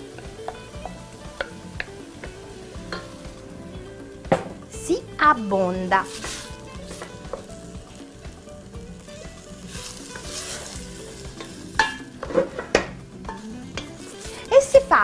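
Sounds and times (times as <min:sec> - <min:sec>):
vegetables sizzling in oil: 0:00.0 - 0:15.0
wooden spoon stirring and scraping: 0:06.0 - 0:07.7, 0:09.5 - 0:12.8.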